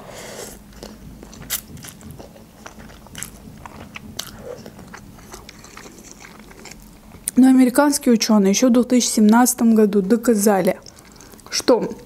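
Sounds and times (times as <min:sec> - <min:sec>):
wet chewing: 0:00.6 - 0:07.4, 0:10.7 - 0:12.0.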